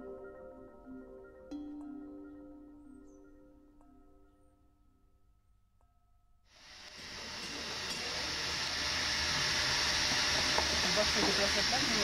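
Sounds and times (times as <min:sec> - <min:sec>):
wax sizzling in a pan: 0:06.6 - 0:12.0.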